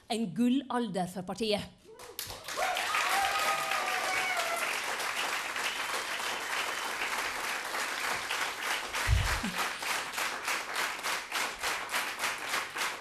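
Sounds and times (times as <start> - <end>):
crowd applauding: 2.0 - 13.0
low thump: 9.1 - 9.4.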